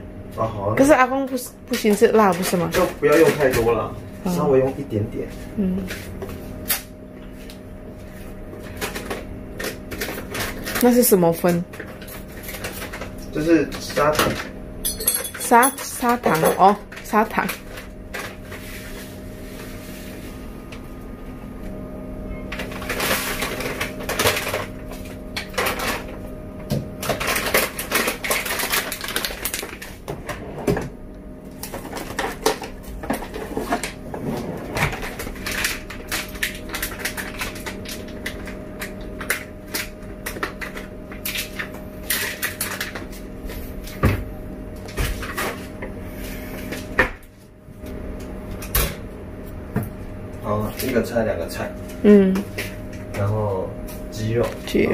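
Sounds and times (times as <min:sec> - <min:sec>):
plastic bag crinkling: 0:22.5 - 0:26.2, 0:27.0 - 0:30.0, 0:34.9 - 0:43.2.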